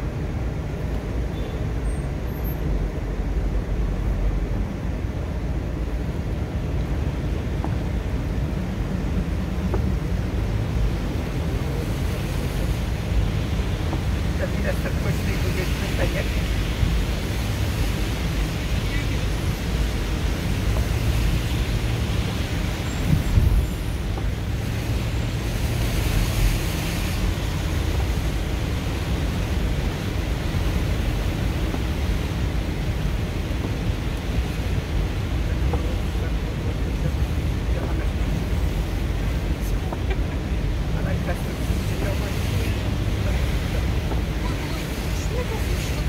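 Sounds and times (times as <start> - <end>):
car engine rumble: 0.0 - 46.0
rain falling on car: 1.8 - 46.0.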